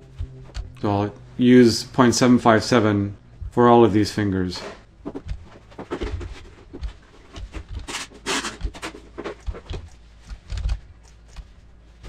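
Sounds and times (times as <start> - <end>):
computer mouse clicks: 9.4 - 11.5
computer keyboard clicks: 9.7 - 11.4.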